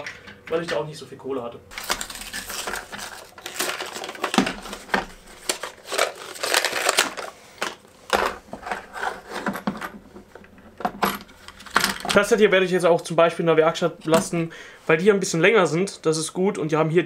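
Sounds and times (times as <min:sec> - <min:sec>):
cardboard rustling and crinkling: 0:01.7 - 0:10.0
plastic case clicks and clatter: 0:01.8 - 0:12.2.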